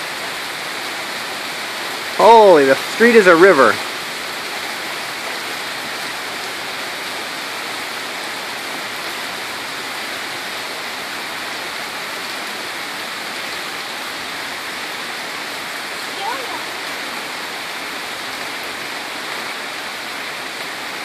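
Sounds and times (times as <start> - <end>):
heavy rain pouring: 0.0 - 21.0.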